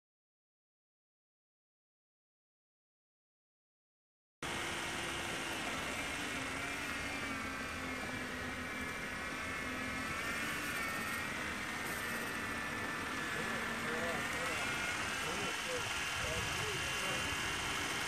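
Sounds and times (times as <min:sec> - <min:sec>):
small motor whine: 0:04.4 - 0:18.0.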